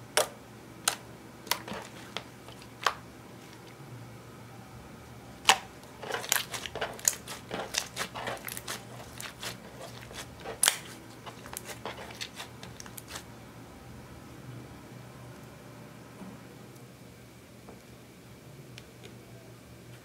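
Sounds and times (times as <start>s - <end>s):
slime squelching and popping: 0.2s - 3.0s, 5.4s - 13.2s.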